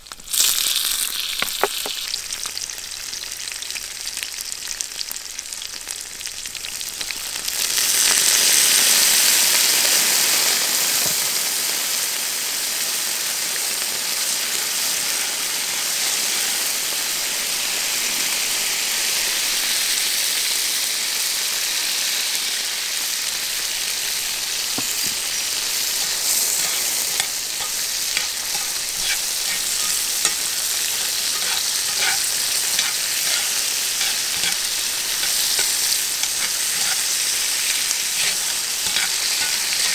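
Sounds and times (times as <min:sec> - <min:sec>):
food sizzling in oil: 0:00.0 - 0:39.9
metal tongs scraping pan: 0:24.9 - 0:39.9.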